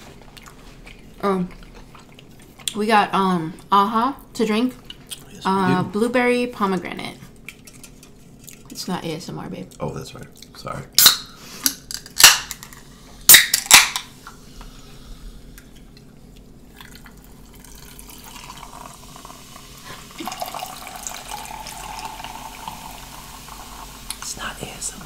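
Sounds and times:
cans cracking open: 0:11.0 - 0:14.1
sparkling water fizzing: 0:17.4 - 0:24.7.

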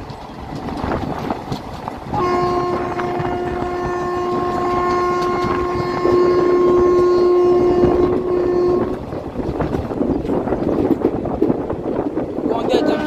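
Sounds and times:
moving train rumbling: 0:00.0 - 0:13.0
wind noise: 0:00.0 - 0:13.0
train horn blast: 0:02.1 - 0:09.0, 0:12.6 - 0:13.0.

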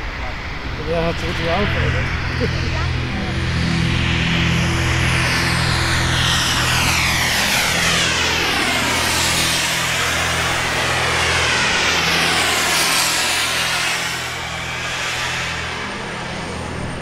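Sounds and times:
model jet turbines whining: 0:00.0 - 0:17.0.

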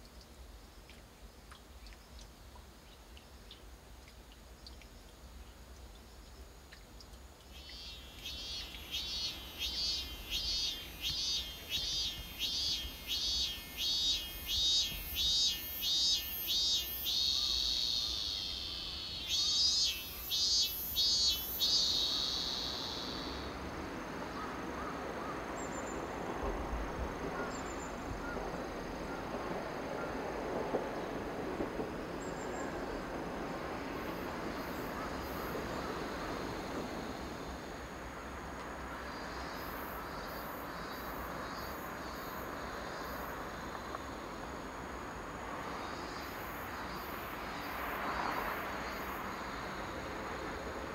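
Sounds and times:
soft steady rushing noise: 0:00.0 - 0:50.9
cicada singing: 0:07.4 - 0:26.6, 0:32.1 - 0:37.9, 0:38.9 - 0:50.9
faint high chirps: 0:07.5 - 0:23.6.

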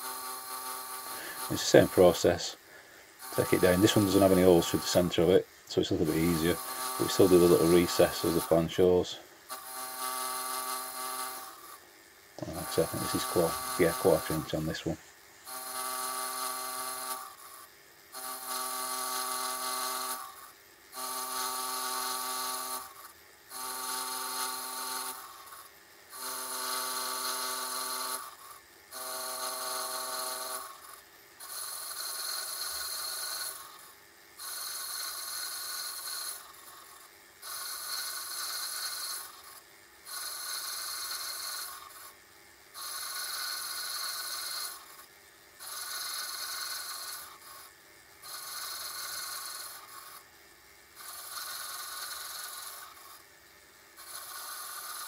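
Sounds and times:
steady machine whine: 0:00.0 - 0:42.2
metal lathe cutting: 0:03.2 - 0:09.0, 0:12.4 - 0:17.5, 0:29.0 - 0:33.6, 0:34.4 - 0:36.6, 0:37.4 - 0:39.5, 0:45.6 - 0:47.7, 0:48.3 - 0:50.2, 0:51.0 - 0:53.2, 0:54.0 - 0:55.0.

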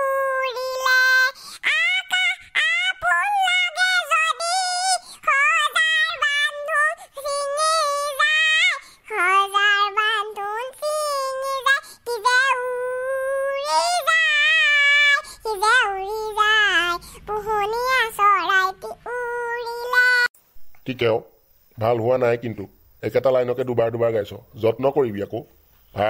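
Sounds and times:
high-pitched cartoon voice singing: 0:00.0 - 0:20.3.

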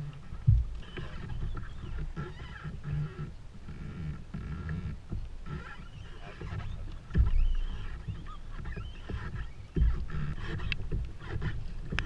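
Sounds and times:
heavy low thumps: 0:00.0 - 0:00.8, 0:07.1 - 0:08.1, 0:09.8 - 0:11.1
wind and water noise: 0:00.0 - 0:12.0.

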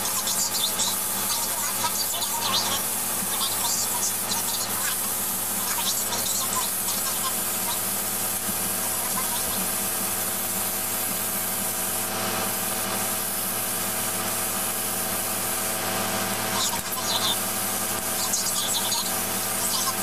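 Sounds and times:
steady hum: 0:00.0 - 0:20.0
spray gun hissing: 0:00.9 - 0:15.8.

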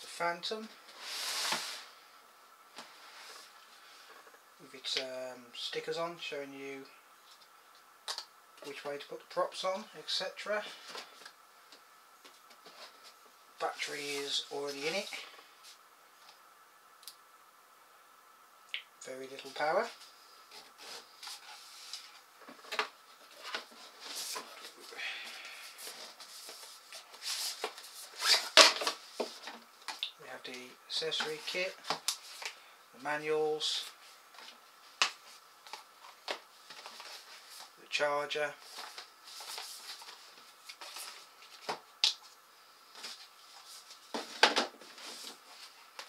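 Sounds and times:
cardboard boxes rustling and scraping: 0:25.6 - 0:29.7.

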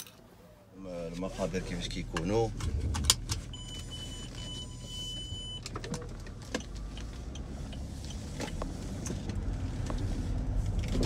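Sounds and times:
engine and road rumble: 0:00.0 - 0:11.0
electronic warning beep: 0:03.5 - 0:05.7.

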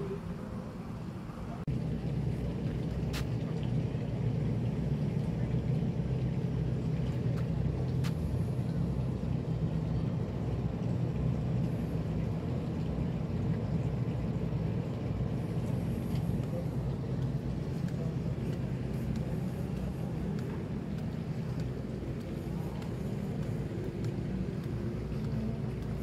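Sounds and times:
boat engine running: 0:00.0 - 0:26.0
faint clicks: 0:15.6 - 0:26.0.

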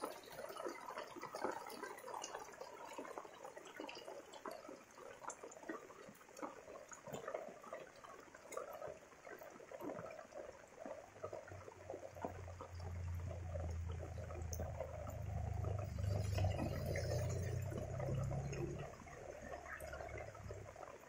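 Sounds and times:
rain falling: 0:00.0 - 0:21.0
water running on road: 0:00.0 - 0:21.0
low rumble: 0:12.3 - 0:20.8.

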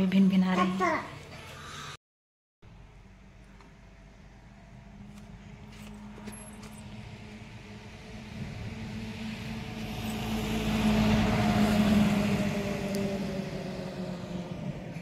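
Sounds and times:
vehicle engine passing: 0:04.0 - 0:15.0.

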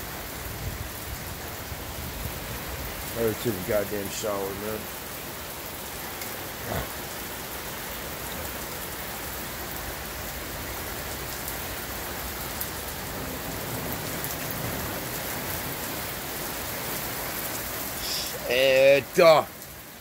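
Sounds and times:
heavy rain pouring: 0:00.0 - 0:20.0.

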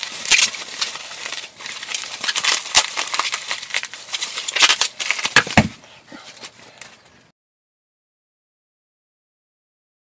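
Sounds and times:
plastic wrapping crinkling: 0:00.0 - 0:07.0.

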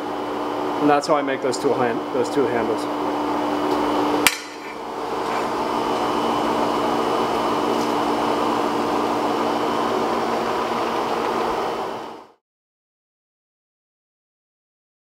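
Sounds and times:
fan-like machine whooshing: 0:00.7 - 0:12.4.

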